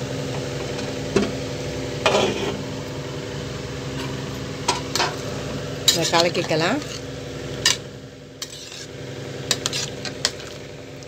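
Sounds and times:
kitchen hum: 0.0 - 11.0.

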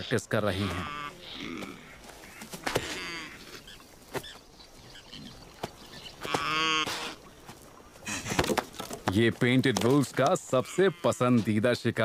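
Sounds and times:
impala deep grunting calls: 0.5 - 3.9, 4.8 - 7.2.

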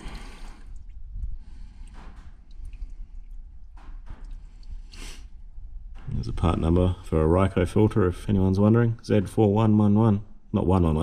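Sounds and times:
oil trickling and dripping: 0.0 - 6.4.

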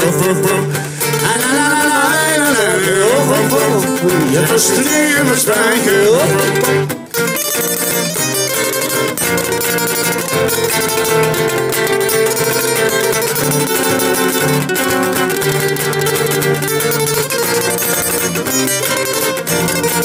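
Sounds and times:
acoustic guitar strumming: 0.0 - 20.0
balalaika plucking: 0.0 - 20.0.

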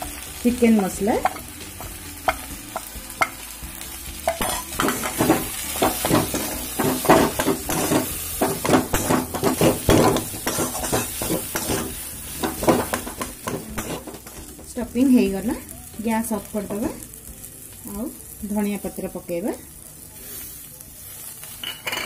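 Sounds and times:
light sizzle of frying: 0.0 - 22.0
metal spatula scraping pan: 4.4 - 14.5.

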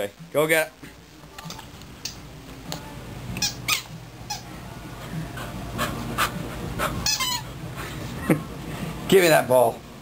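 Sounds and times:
low steady hum: 0.1 - 10.0
squeaky toy squeaking: 3.4 - 4.5, 7.0 - 7.5.

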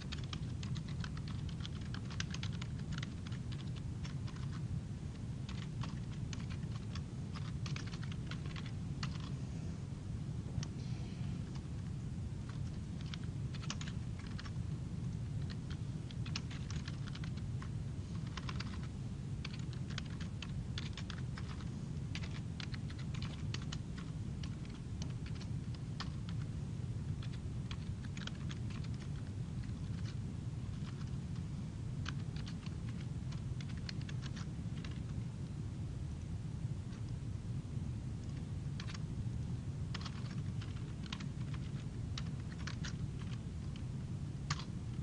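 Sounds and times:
computer keyboard typing: 0.0 - 4.6, 5.4 - 9.3, 12.4 - 14.6, 15.2 - 26.5, 27.2 - 31.4, 32.0 - 35.1, 38.2 - 39.0, 39.9 - 43.8, 44.4 - 45.0
steady low hum: 0.0 - 45.0.

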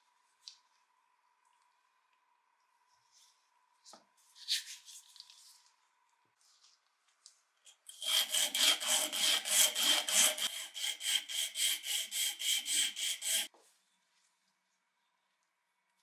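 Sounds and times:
sandpaper rasping on wood: 8.0 - 13.5.

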